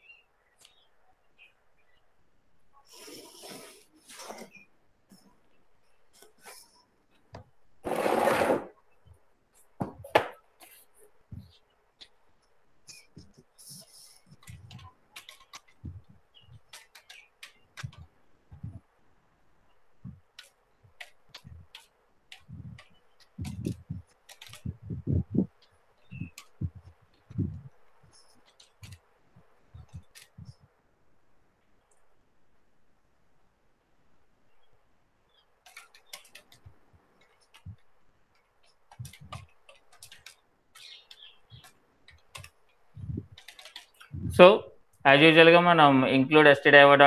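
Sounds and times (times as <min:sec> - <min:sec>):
keyboard typing: 0:12.9 - 0:18.8, 0:20.0 - 0:29.1, 0:29.7 - 0:30.6, 0:35.6 - 0:44.4.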